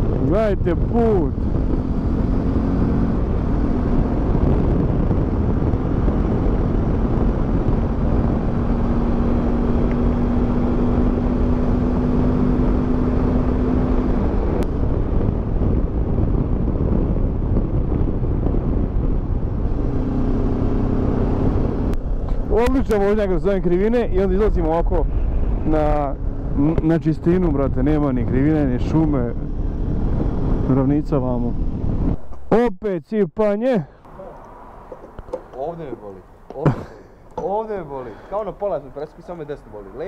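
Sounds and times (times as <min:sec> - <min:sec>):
wind and road noise: 0:00.0 - 0:40.0.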